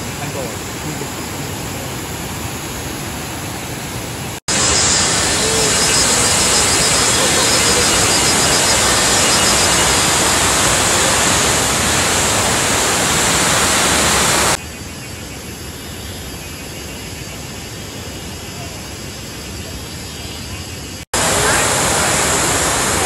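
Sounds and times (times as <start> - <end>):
river water rushing: 0.0 - 14.6, 21.2 - 23.0.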